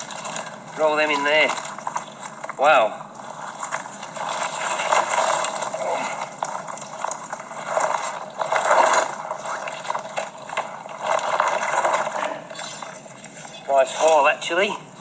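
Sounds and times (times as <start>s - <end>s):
net rustling in grass: 3.3s - 13.0s.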